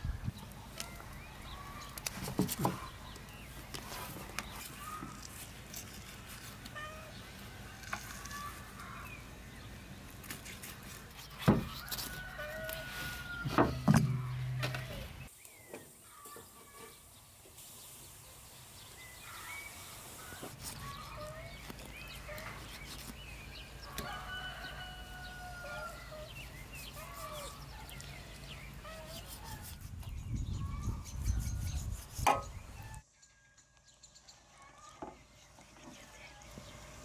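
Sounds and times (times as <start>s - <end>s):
rooster crowing: 11.7s - 13.9s, 23.8s - 26.3s.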